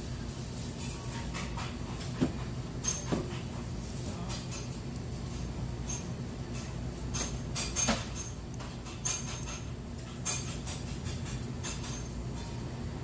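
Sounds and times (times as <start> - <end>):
shop background hum: 0.0 - 13.0
clinks and clatters: 5.8 - 12.6.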